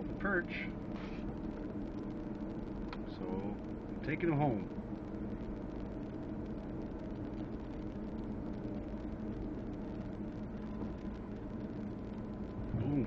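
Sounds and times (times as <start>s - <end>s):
car engine at low speed: 0.0s - 13.0s.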